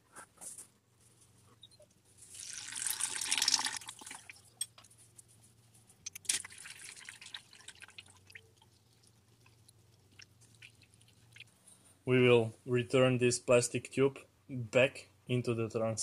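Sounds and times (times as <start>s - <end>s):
oil trickling: 2.2s - 4.7s, 6.0s - 11.8s.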